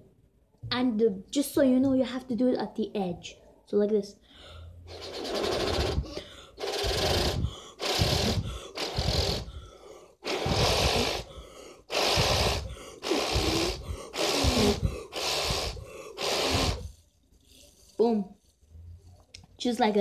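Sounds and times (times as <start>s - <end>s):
puffs of breath blown: 4.2s - 18.0s.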